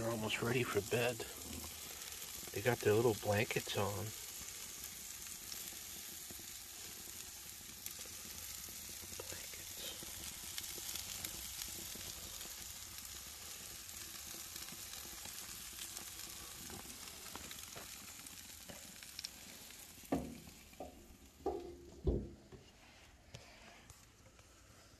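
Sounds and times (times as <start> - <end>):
patties sizzling on a grill: 0.0 - 24.9
grill lid closing thumps: 20.1 - 22.4.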